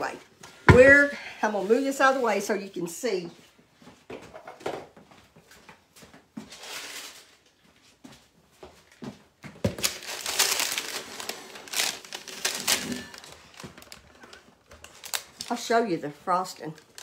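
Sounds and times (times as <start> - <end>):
paper crinkling and rustling: 6.5 - 7.6, 9.6 - 17.0.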